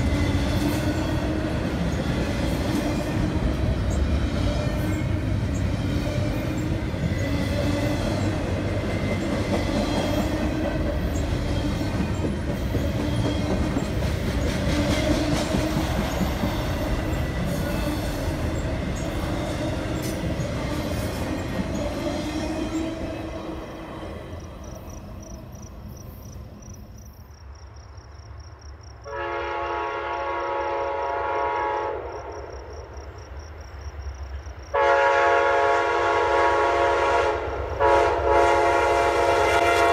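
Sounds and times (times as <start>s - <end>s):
freight train wheel rumble: 0.0s - 27.0s
locomotive horn blast: 29.0s - 32.3s, 34.7s - 39.9s.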